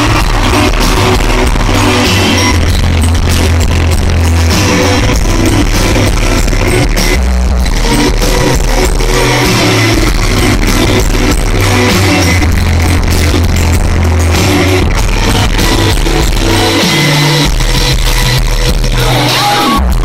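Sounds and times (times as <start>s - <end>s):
drum hits: 0.0s - 11.7s
electric guitar: 0.0s - 20.0s
heavy distorted bass: 0.0s - 20.0s.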